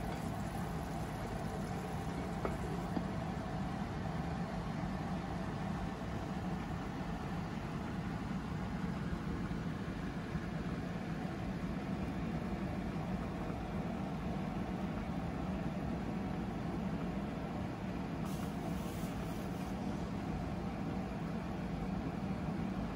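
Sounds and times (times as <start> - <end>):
gas burner rumbling under pot: 0.0 - 6.4, 18.1 - 20.9.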